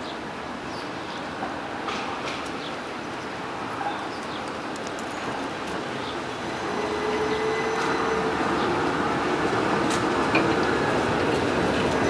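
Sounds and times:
tram wheels on rail: 1.1s - 12.0s.

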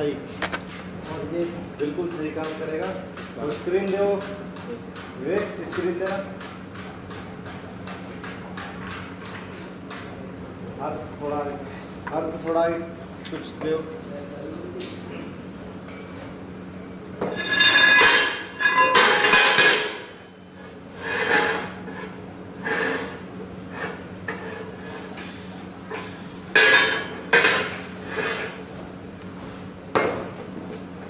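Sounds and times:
steady low hum: 0.0s - 31.0s
metal clanks and scrapes: 17.2s - 28.6s.

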